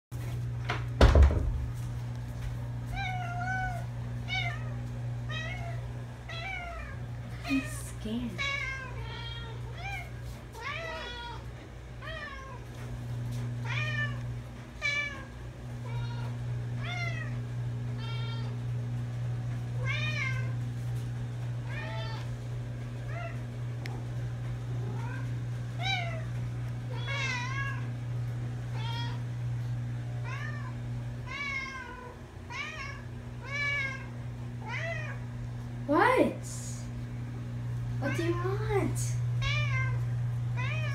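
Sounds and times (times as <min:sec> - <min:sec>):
cats meowing: 0:02.9 - 0:07.8, 0:08.4 - 0:12.8, 0:13.6 - 0:18.7, 0:19.8 - 0:20.6, 0:21.6 - 0:22.4, 0:24.9 - 0:27.9, 0:28.7 - 0:29.3, 0:30.2 - 0:35.3, 0:39.4 - 0:40.9.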